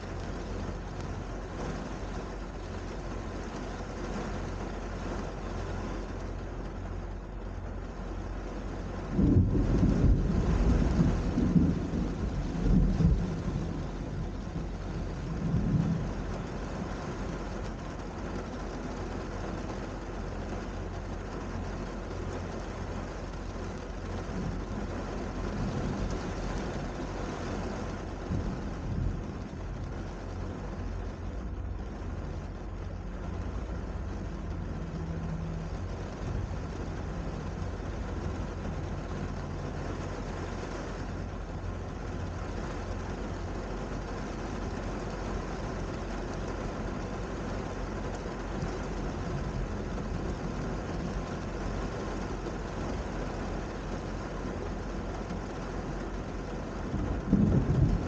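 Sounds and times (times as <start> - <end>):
steady rain: 0.0 - 58.0
thunder rumbling: 9.1 - 17.6, 24.1 - 40.2, 56.8 - 58.0.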